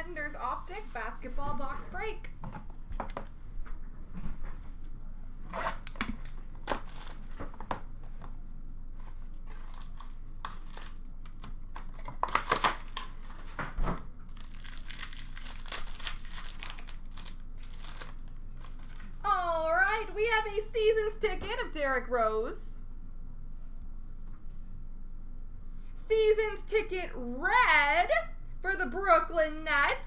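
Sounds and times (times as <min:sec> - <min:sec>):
foil wrapping crinkling and tearing: 0:05.7 - 0:07.5, 0:09.2 - 0:13.6, 0:14.2 - 0:19.2.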